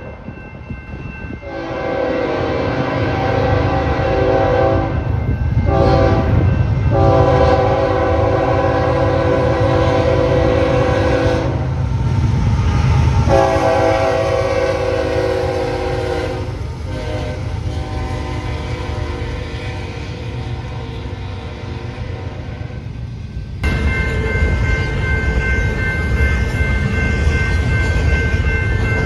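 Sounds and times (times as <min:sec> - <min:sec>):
diesel locomotive rumble: 0:00.0 - 0:29.0
locomotive air horn blasts: 0:01.4 - 0:05.0, 0:05.6 - 0:11.8, 0:13.3 - 0:22.9.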